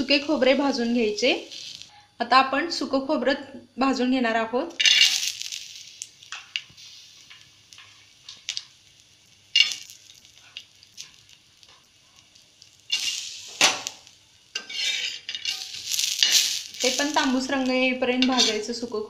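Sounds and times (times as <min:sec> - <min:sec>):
coconut slices sizzling on a pan: 0:00.0 - 0:02.0, 0:04.7 - 0:19.0
scraping on a pan: 0:14.5 - 0:17.3, 0:18.2 - 0:18.8.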